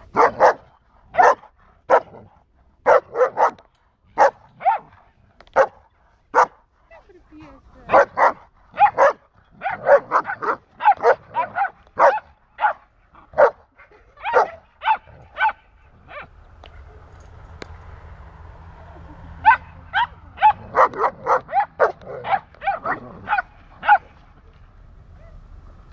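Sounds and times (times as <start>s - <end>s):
dog barking: 0.1s - 6.6s, 7.9s - 16.3s, 19.4s - 24.2s.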